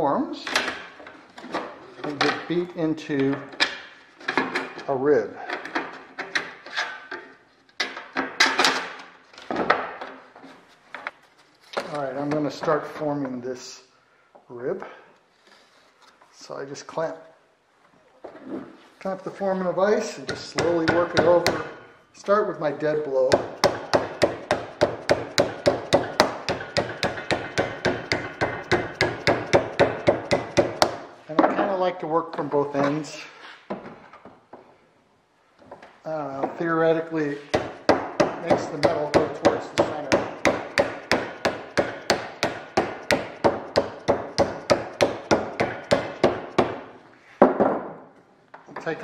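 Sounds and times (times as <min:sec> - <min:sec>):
hammer striking sheet metal: 0:23.3 - 0:31.0.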